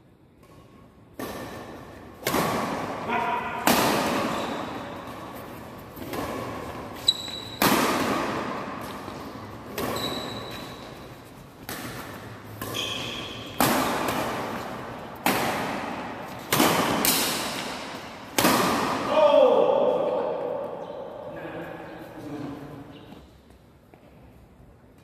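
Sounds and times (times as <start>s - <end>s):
rackets hitting shuttlecock: 0.3s - 19.2s
shoe squeaks: 4.3s - 5.0s, 6.9s - 7.7s, 9.7s - 11.4s, 12.6s - 13.6s.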